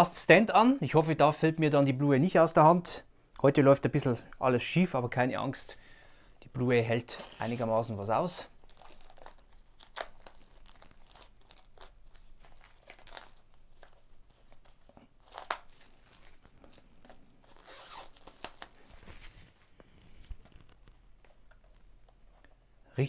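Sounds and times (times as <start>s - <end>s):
plastic wrapping crinkling: 7.1s - 22.2s.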